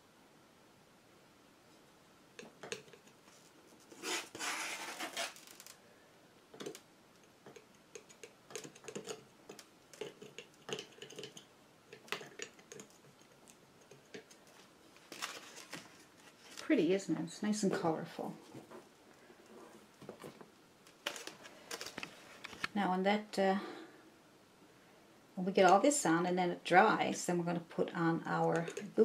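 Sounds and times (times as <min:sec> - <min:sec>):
palette knife scraping paint: 0:03.8 - 0:05.4.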